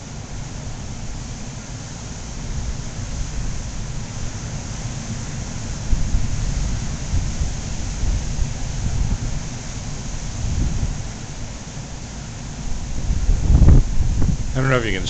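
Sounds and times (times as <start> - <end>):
breaking surf hiss: 3.0 - 15.0
wind buffeting microphone: 5.7 - 11.4, 12.6 - 15.0.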